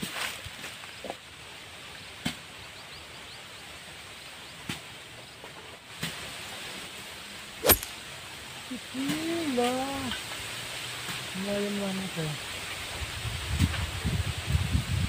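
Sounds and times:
steady outdoor hiss: 0.0s - 15.0s
sharp click: 7.6s - 8.0s.

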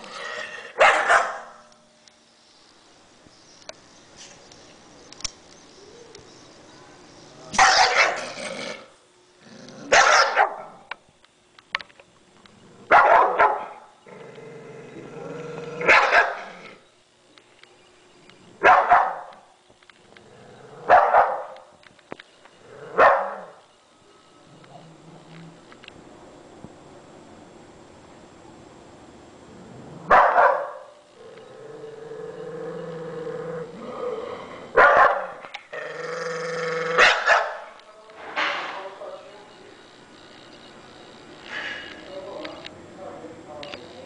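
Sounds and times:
dog barking: 0.8s - 1.6s, 7.6s - 8.2s, 9.9s - 10.8s, 12.9s - 13.8s, 15.8s - 16.5s, 18.6s - 19.4s, 20.9s - 21.6s, 23.0s - 23.5s, 30.1s - 31.0s, 34.8s - 35.4s, 37.0s - 37.7s.

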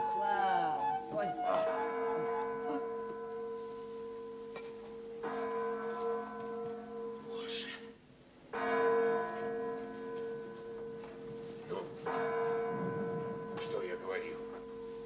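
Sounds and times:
church bell tolling: 0.0s - 15.0s.

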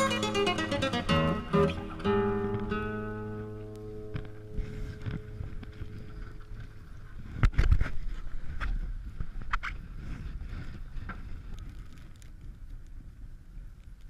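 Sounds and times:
low rumble: 1.7s - 9.1s
wind on microphone: 3.8s - 14.0s.

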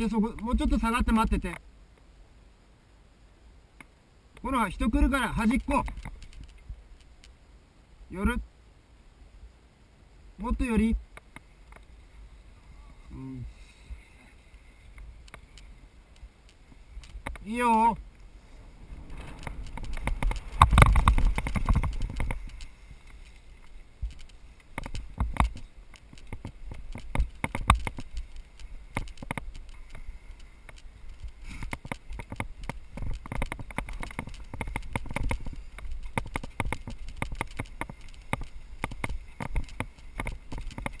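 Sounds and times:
bike rattling over rough ground: 4.8s - 7.4s, 14.9s - 41.0s.

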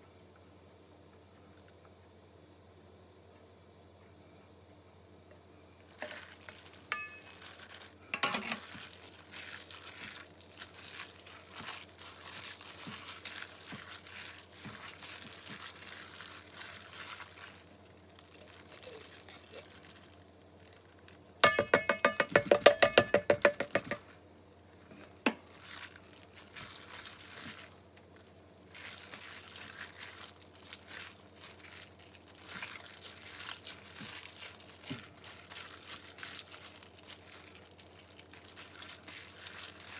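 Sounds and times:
plastic glove crinkling: 5.8s - 24.0s, 25.3s - 39.9s
meat mixing in metal bowl: 6.9s - 17.8s, 21.4s - 24.0s, 28.8s - 39.9s.

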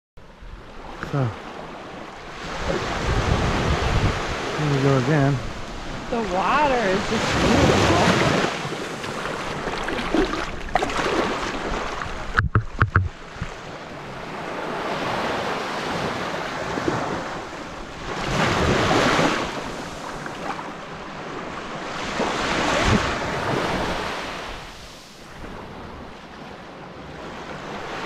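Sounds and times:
small waves lapping on beach: 0.2s - 28.0s
sharp clicks: 12.4s - 13.6s.

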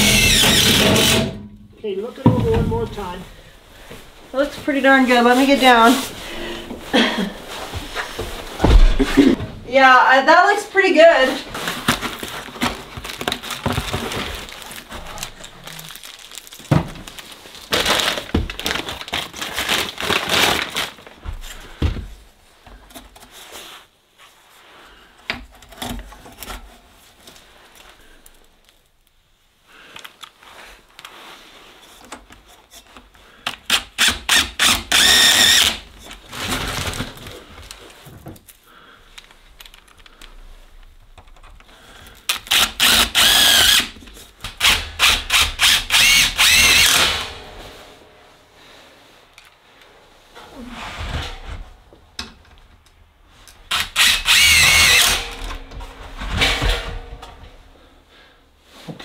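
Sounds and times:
knocks and clatter of installation work: 0.0s - 3.1s, 7.7s - 9.6s, 11.5s - 19.8s, 21.2s - 23.4s, 25.2s - 27.4s, 31.8s - 48.0s, 50.3s - 57.8s.

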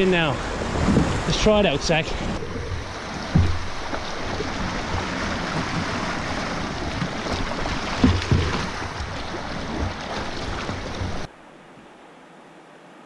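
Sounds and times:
river water rushing and splashing: 0.0s - 13.0s
dull thumps on a canoe: 2.4s - 11.3s.

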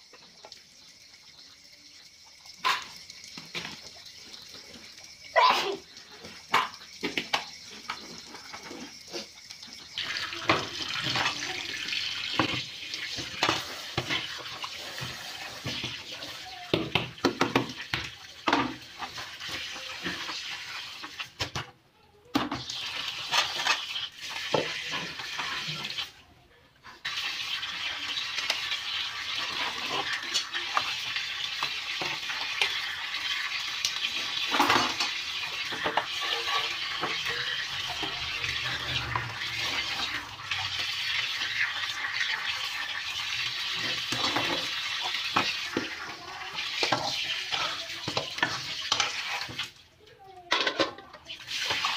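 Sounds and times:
tap water running: 0.0s - 21.7s, 22.3s - 51.9s
dishes clinking and knocking: 2.5s - 4.0s, 34.4s - 40.2s, 50.4s - 51.8s.

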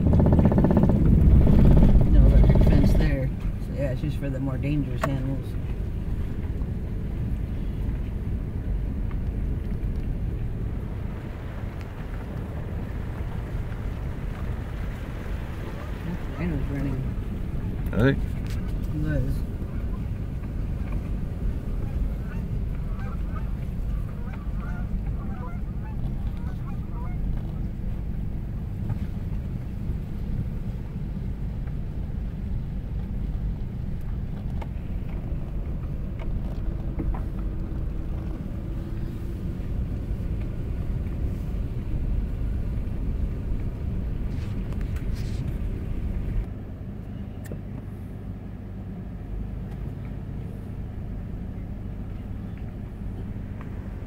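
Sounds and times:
car road and engine rumble: 0.0s - 54.0s
geese honking: 21.7s - 27.3s.

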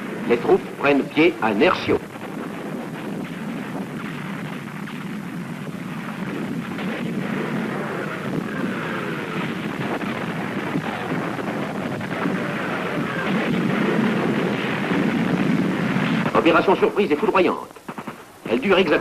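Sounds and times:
crackling: 0.0s - 19.0s.

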